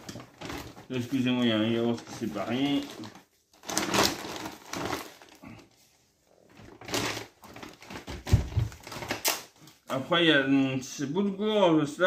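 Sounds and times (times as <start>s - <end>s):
packaging rustling and knocking: 0.0s - 5.4s, 6.4s - 9.6s.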